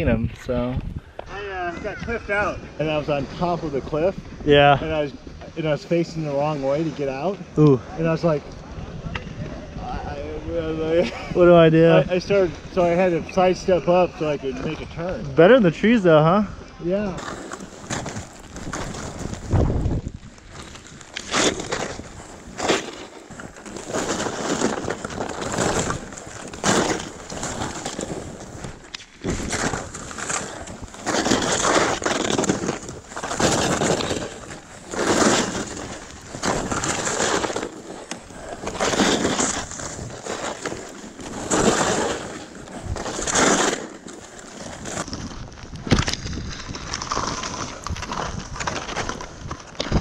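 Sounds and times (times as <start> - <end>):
skis swishing through snow: 2.2 - 8.4, 10.6 - 14.8, 17.1 - 45.5.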